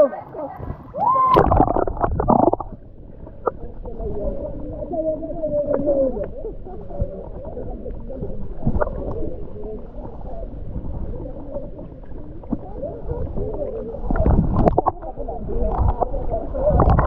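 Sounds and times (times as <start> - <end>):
muffled underwater wash: 0.0 - 17.0
underwater knocks: 0.6 - 4.0, 14.0 - 15.1, 16.7 - 17.0.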